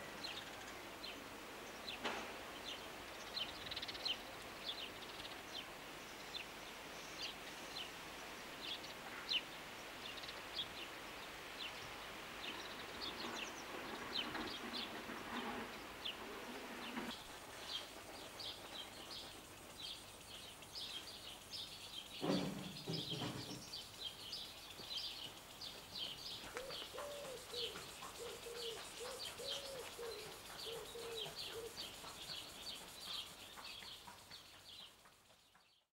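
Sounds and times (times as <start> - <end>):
birds chirping: 0.0 - 35.9
low cooing call: 26.6 - 31.8.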